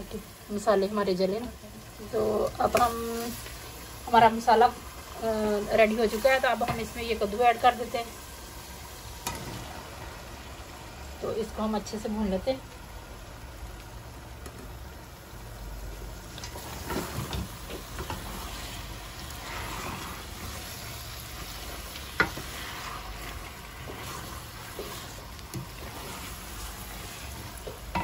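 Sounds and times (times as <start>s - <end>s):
food sizzling in a pot: 0.0s - 28.0s
wooden spoon scraping: 16.4s - 28.0s.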